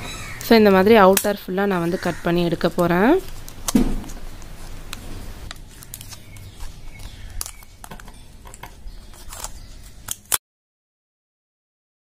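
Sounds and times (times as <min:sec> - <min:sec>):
scissors snipping: 0:04.9 - 0:10.4.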